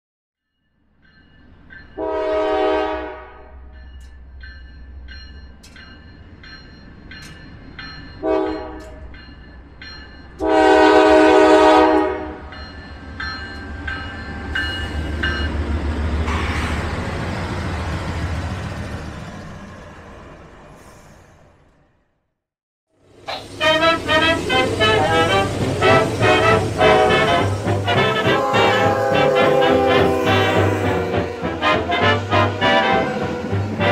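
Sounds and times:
locomotive engine and wheels rumbling: 0:00.8 - 0:22.3, 0:22.9 - 0:33.9
locomotive horn blasts: 0:02.0 - 0:03.6, 0:08.2 - 0:09.0, 0:10.4 - 0:12.5, 0:16.2 - 0:16.9, 0:23.3 - 0:33.9
crossing signal bell ringing: 0:03.4 - 0:11.0, 0:12.4 - 0:16.4.

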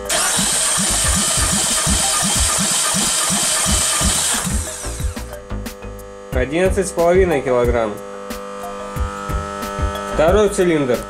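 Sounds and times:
engine cranking on starter: 0:00.0 - 0:05.3.

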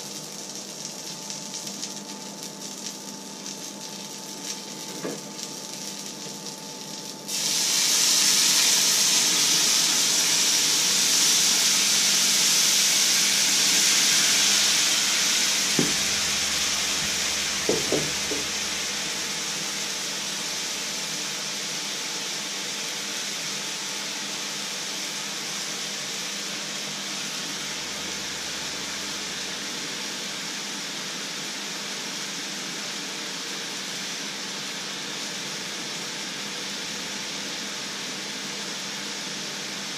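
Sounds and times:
liquid sizzling in hot pan: 0:00.0 - 0:39.9
short knocks: 0:17.7 - 0:18.5.

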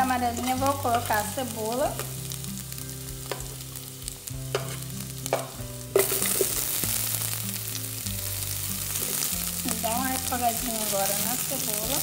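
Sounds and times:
garlic sizzling in fat: 0:00.0 - 0:12.0.

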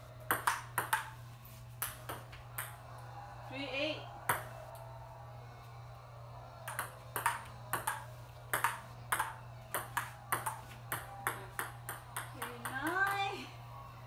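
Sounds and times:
ping pong ball clicking: 0:00.3 - 0:01.1, 0:01.8 - 0:02.8, 0:06.7 - 0:13.2.

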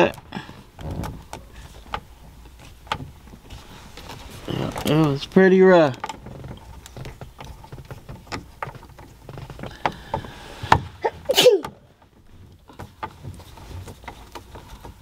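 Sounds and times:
screw clicks and knocks: 0:00.0 - 0:03.4, 0:05.9 - 0:11.0
person sneezing: 0:11.0 - 0:11.8.

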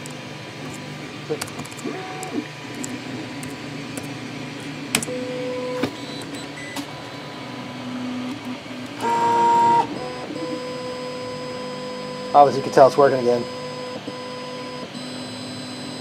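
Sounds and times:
stepper motors whining: 0:00.0 - 0:16.0.

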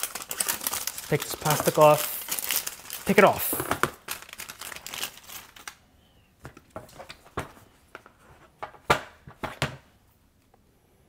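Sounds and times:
plastic film crinkling: 0:00.0 - 0:05.8.

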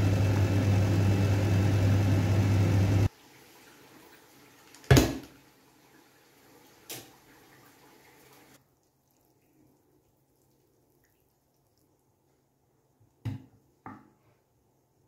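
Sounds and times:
stove hum and rushing: 0:00.0 - 0:03.5.

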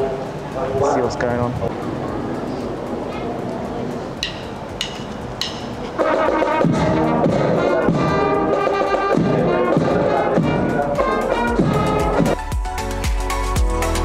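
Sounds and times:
bass and snare drums: 0:04.2 - 0:14.0
marching band playing: 0:04.3 - 0:14.0
trumpets and saxophones: 0:06.0 - 0:12.4.

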